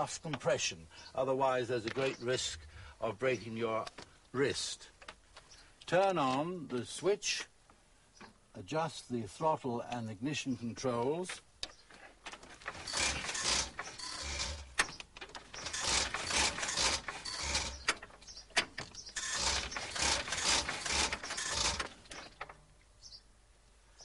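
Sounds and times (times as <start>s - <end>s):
engine being hand-cranked: 12.3s - 22.6s.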